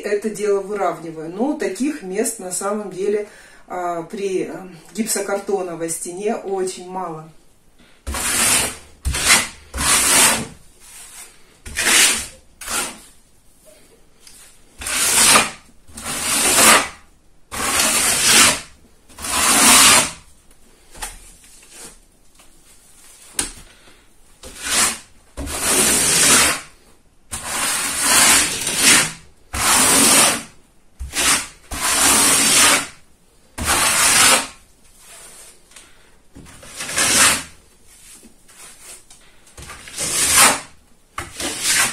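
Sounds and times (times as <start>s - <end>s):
trowel scraping plaster on wall: 8.0s - 13.2s, 14.8s - 20.3s, 24.4s - 33.0s, 33.6s - 35.6s, 36.4s - 37.6s, 39.6s - 41.9s.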